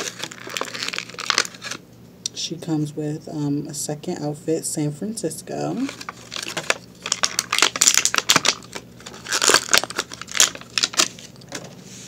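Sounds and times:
plastic wrapping crinkling: 0:00.0 - 0:01.8, 0:05.8 - 0:11.7.

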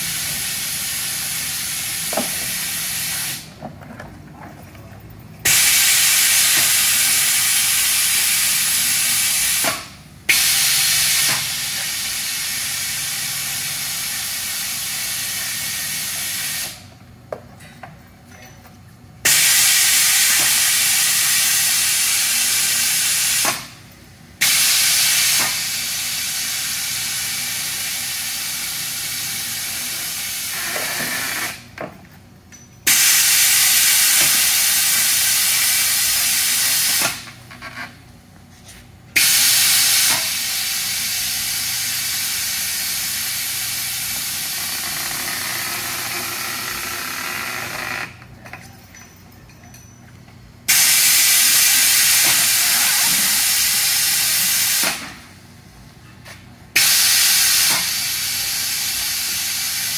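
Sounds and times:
compressed air hissing: 0:00.0 - 0:03.6, 0:05.4 - 0:16.9, 0:19.2 - 0:23.8, 0:24.4 - 0:31.7, 0:32.9 - 0:37.3, 0:39.2 - 0:44.9, 0:50.7 - 0:55.3, 0:56.8 - 0:59.9.

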